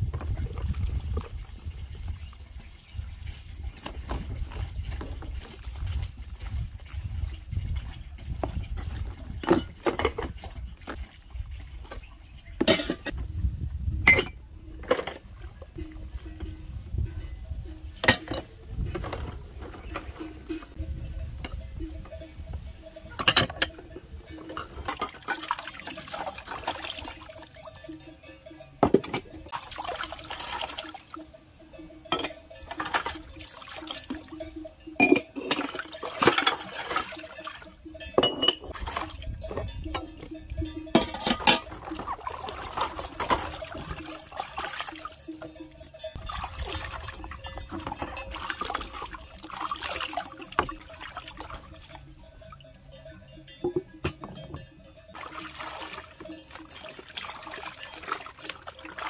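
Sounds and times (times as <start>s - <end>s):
dishes clinking: 12.6s - 13.2s, 14.0s - 26.7s, 27.4s - 29.6s, 31.6s - 44.3s, 46.9s - 49.0s, 52.3s - 55.5s
water splashing in basin: 24.4s - 28.0s, 29.1s - 31.4s, 32.2s - 52.0s, 55.1s - 59.0s.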